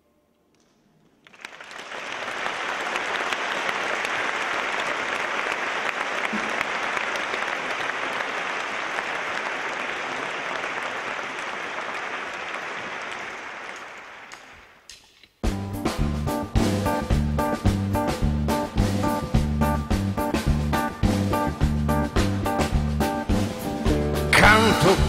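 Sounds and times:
audience applauding: 1.2s - 14.8s.

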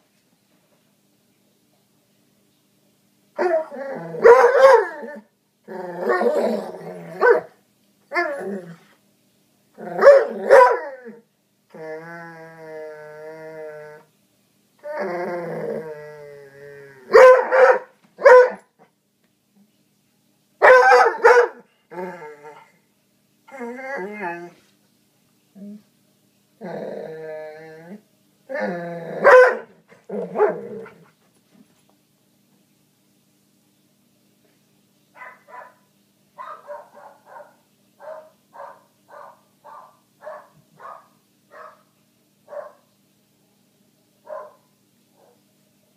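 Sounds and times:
dog growling: 3.5s - 7.4s, 8.2s - 8.9s, 9.8s - 14.1s, 14.8s - 17.2s, 21.9s - 22.8s, 26.6s - 29.4s, 30.0s - 31.1s
dog barking: 4.2s - 4.9s, 7.2s - 7.5s, 10.0s - 10.9s, 17.1s - 18.7s, 20.6s - 21.6s, 29.2s - 29.7s, 35.2s - 35.8s, 36.4s - 41.9s, 42.5s - 42.9s, 44.3s - 45.4s.

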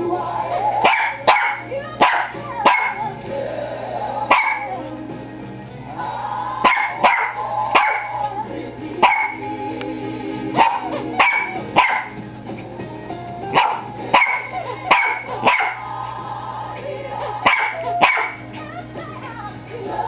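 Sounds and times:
background music: 0.0s - 20.0s
small dog barking shrilly: 0.8s - 3.0s, 4.3s - 4.7s, 6.6s - 8.2s, 9.0s - 9.4s, 10.6s - 12.2s, 13.5s - 15.9s, 17.4s - 18.4s.

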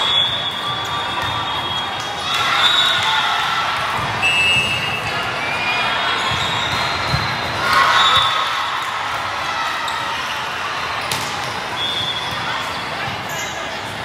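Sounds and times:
crowd chatter in large hall: 0.0s - 14.0s
sneakers squeaking on court: 6.1s - 8.9s, 9.8s - 13.7s.

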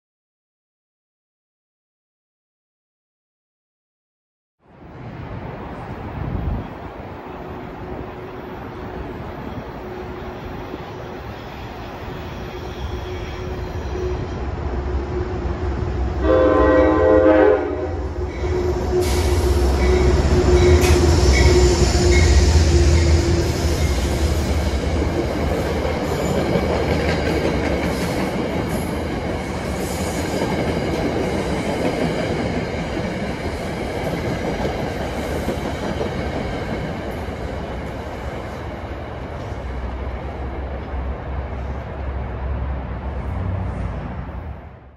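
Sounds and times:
rumble of passing train cars: 4.6s - 44.9s
train horn blast: 12.2s - 23.5s.

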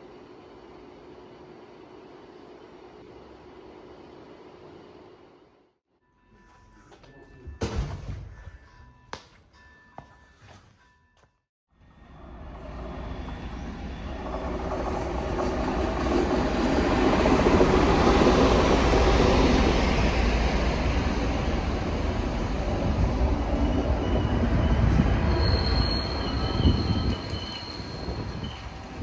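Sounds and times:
diesel locomotive running past: 11.8s - 29.0s
train wheels rolling on rails: 12.2s - 29.0s
high brake squeal: 23.5s - 29.0s.

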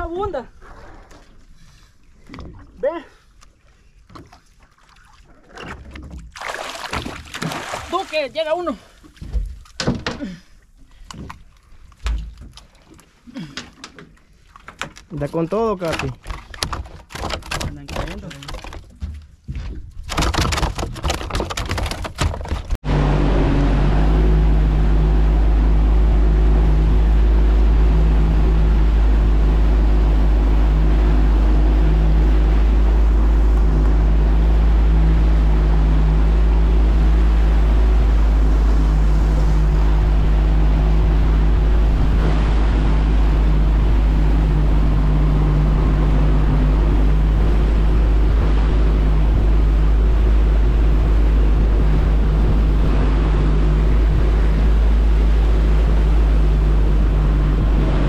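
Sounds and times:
outboard motor droning: 22.8s - 58.0s.

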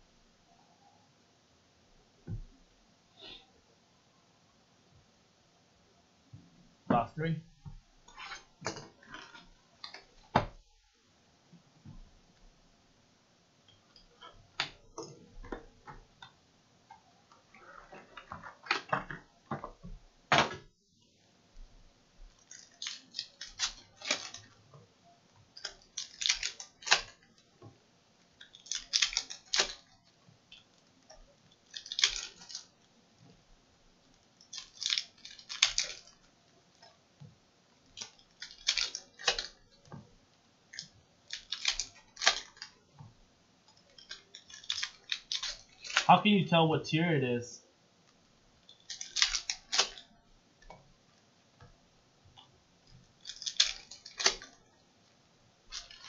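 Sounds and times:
wrappers crinkling: 31.6s - 32.8s, 53.2s - 54.6s, 55.7s - 56.0s.

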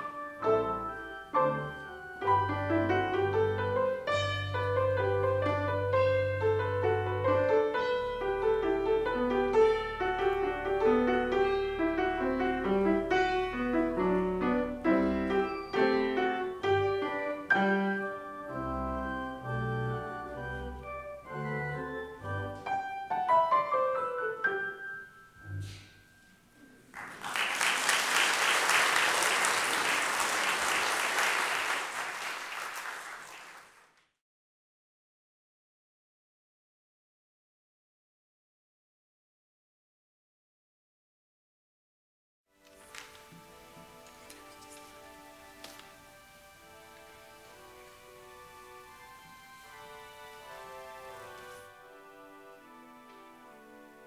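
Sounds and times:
live piano piece: 0.0s - 32.9s, 42.6s - 54.0s
audience applause: 26.9s - 34.0s.

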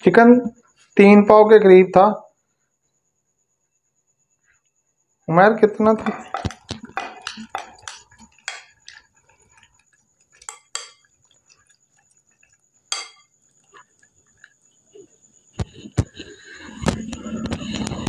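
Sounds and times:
meat knocking against glass bowl: 5.9s - 11.2s, 12.9s - 13.4s.

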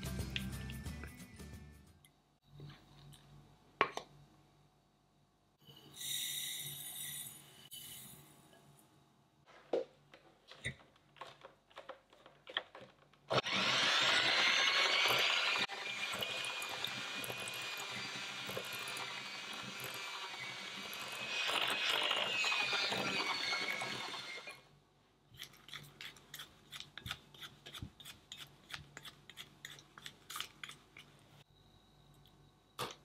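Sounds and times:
electric hand mixer whine: 13.3s - 24.6s.

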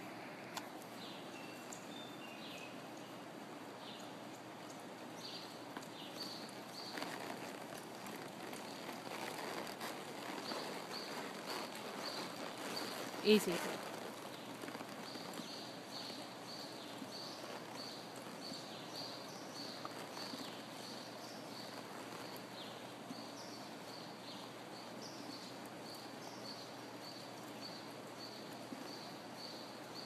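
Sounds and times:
low background hiss: 0.0s - 30.0s
hoofbeats on soft dirt: 5.2s - 24.1s.

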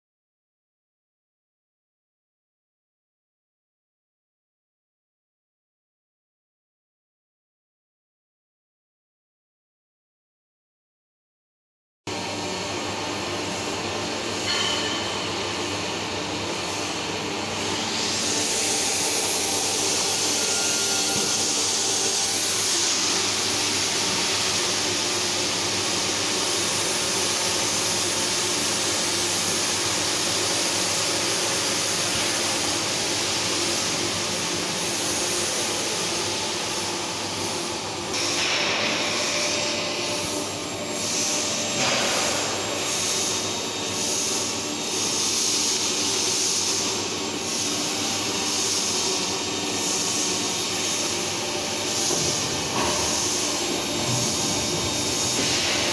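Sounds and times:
welding hiss: 17.6s - 55.9s.

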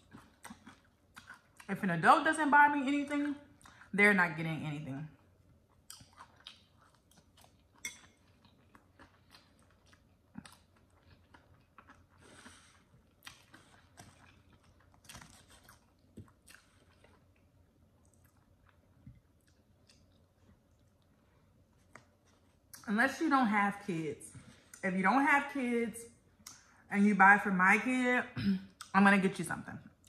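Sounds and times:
close chewing: 0.0s - 1.7s, 5.4s - 22.8s.

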